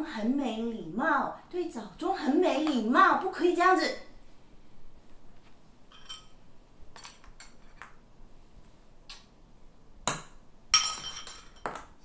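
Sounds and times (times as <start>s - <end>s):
utensil clinking on ceramic bowl: 5.9s - 6.4s.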